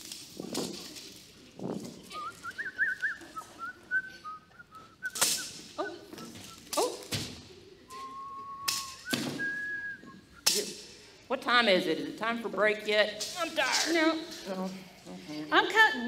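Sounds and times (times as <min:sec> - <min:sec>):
person whistling a tune: 0:02.1 - 0:06.7, 0:07.9 - 0:10.5.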